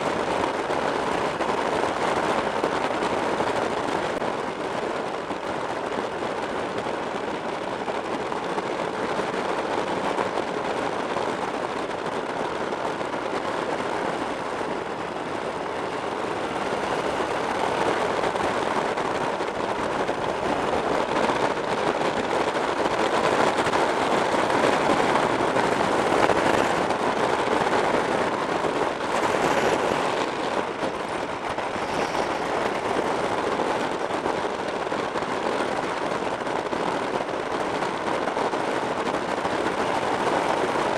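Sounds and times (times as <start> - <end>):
motorcycle engine and tyre noise: 0.0 - 40.9
wind rushing over microphone: 0.0 - 40.9.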